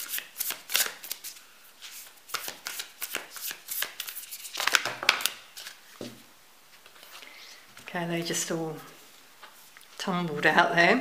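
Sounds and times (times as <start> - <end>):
cards being shuffled: 0.0 - 5.8.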